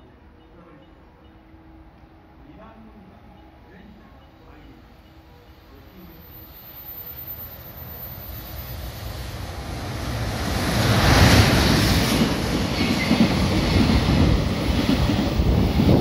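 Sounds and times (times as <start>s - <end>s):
electric locomotive passing: 0.0s - 16.0s.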